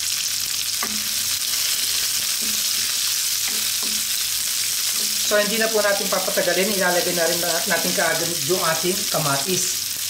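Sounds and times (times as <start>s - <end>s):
onion and garlic sizzling in oil: 0.0s - 10.0s
spatula scraping and tapping pan: 0.8s - 5.3s.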